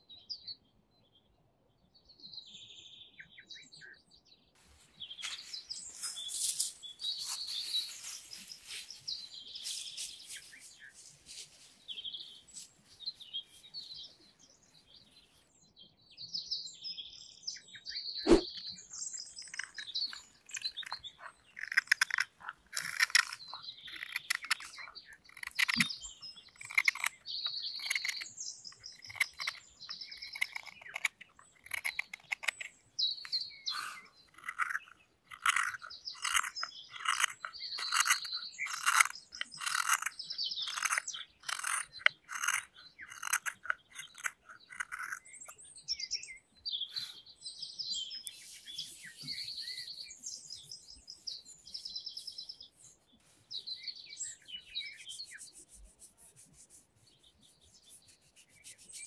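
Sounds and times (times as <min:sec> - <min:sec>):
songbirds chirping and singing: 0:00.0 - 0:59.0.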